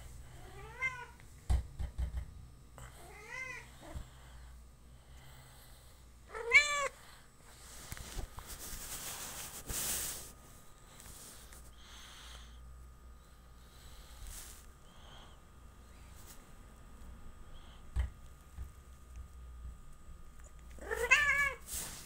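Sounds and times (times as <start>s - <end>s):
rustling: 7.5s - 10.4s.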